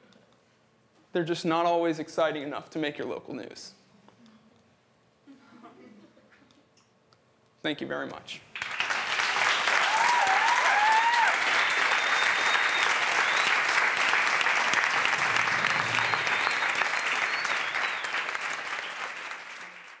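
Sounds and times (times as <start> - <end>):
audience applauding: 8.6 - 20.0
voices whooping: 9.8 - 13.6, 15.0 - 18.4.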